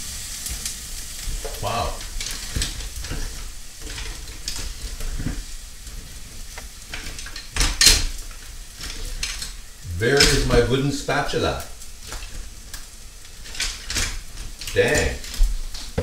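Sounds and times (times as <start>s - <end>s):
onions sizzling in a frying pan: 0.0s - 16.0s
kitchen utensils clattering: 0.4s - 16.0s.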